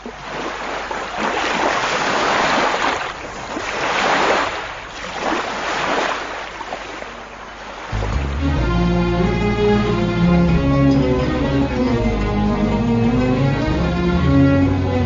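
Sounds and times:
sea waves washing in: 0.0 - 10.4.

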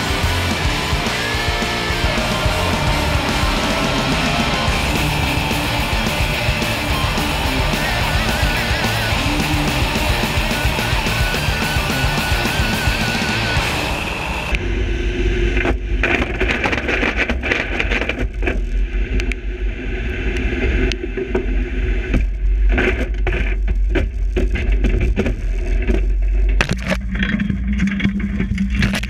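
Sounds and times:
jet boat engine: 0.0 - 16.7
water noise: 0.0 - 29.0.

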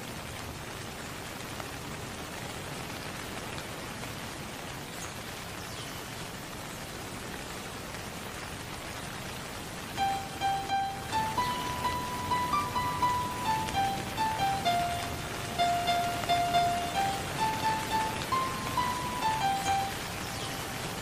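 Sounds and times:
steady hiss: 9.3 - 21.0.

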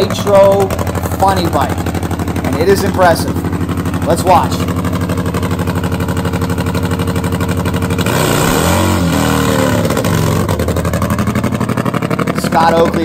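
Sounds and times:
drag motorcycle engine revving: 0.0 - 13.0
rear tyre spinning in burnout: 4.7 - 13.0.

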